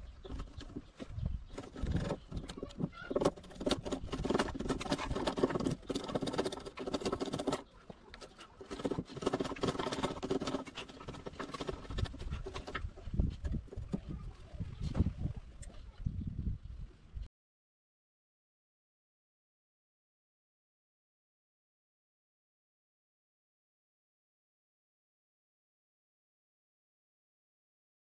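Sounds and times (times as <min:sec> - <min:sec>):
hand tools scraping wood: 0:00.1 - 0:14.3.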